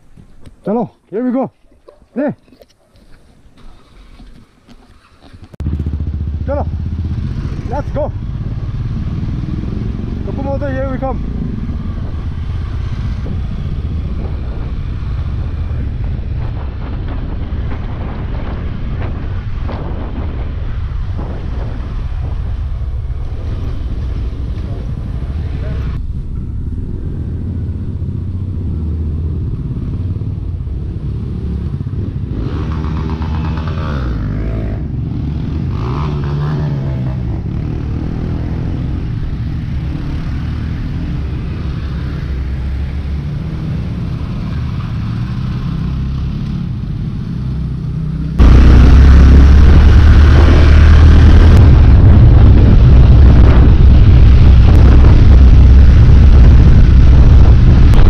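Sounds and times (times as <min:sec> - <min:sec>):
motorcycle engines rumbling: 0:00.0 - 0:58.0
wind noise on microphone: 0:08.2 - 0:10.3, 0:11.2 - 0:39.9, 0:48.3 - 0:58.0.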